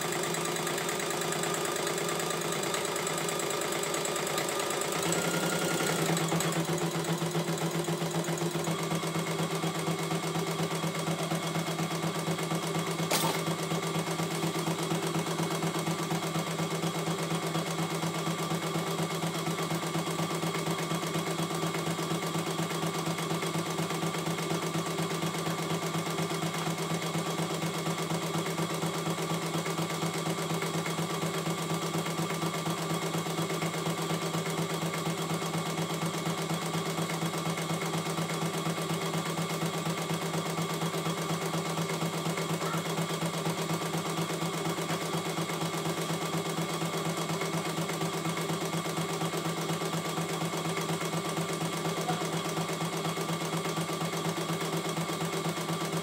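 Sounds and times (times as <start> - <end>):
embroidery machine stitching: 0.0 - 9.4, 13.0 - 13.8
single click: 13.1 - 13.5.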